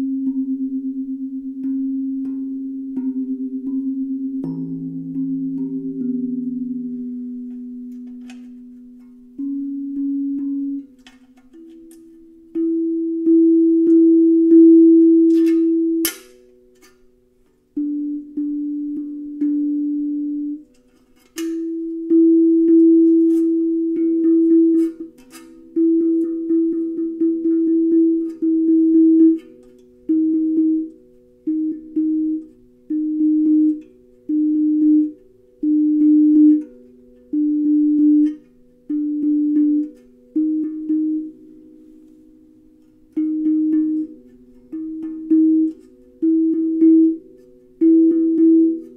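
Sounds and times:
steel tongue drum notes: 0:00.0 - 0:48.9.

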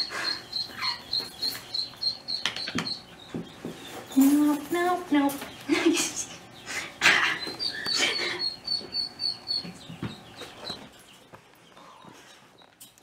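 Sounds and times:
marmot high chirps: 0:00.0 - 0:03.1, 0:07.4 - 0:09.7.

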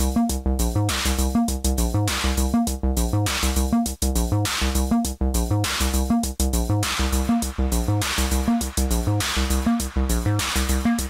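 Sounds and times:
acid synth bass line: 0:00.0 - 0:11.0
drum machine hits: 0:06.8 - 0:11.0.

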